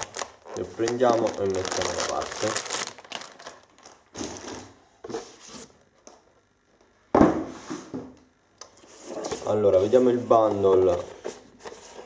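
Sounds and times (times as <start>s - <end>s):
packaging rustling: 0.0s - 4.7s
object thumping on table: 7.1s - 8.2s.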